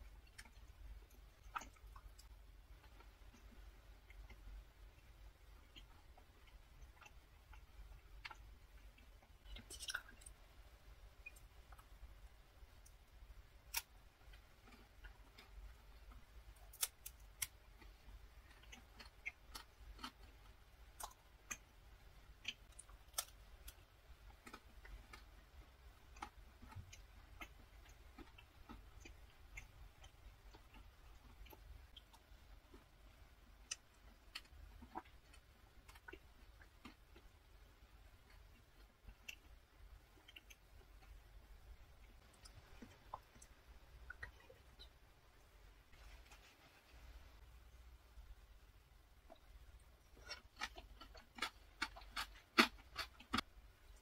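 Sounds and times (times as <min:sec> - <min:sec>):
chewing crisp macaron: 0:13.6 - 0:21.7, 0:22.3 - 0:44.9, 0:49.2 - 0:54.0.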